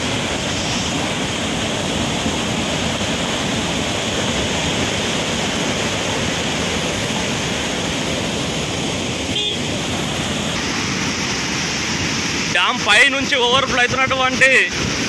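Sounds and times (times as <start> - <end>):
water rushing over a dam: 0.0 - 15.0.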